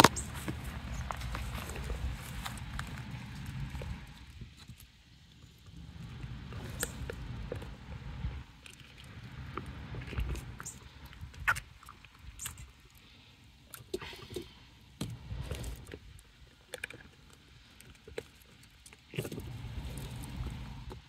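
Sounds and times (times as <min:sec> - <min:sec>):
low rumble: 0:00.0 - 0:04.5, 0:05.6 - 0:11.6
wet squishes and clicks: 0:08.6 - 0:13.1.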